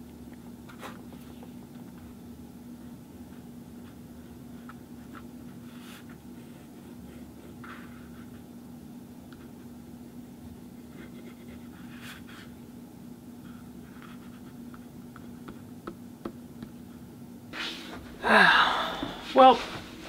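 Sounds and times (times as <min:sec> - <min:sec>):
short falling vocal sound: 0:18.2 - 0:19.2.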